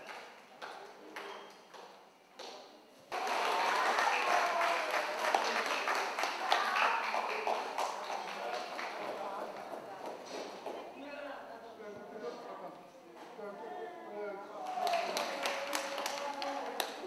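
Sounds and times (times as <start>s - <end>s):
people clapping: 0.0s - 10.8s, 14.6s - 17.0s
audience cheering and calling out: 3.1s - 5.6s.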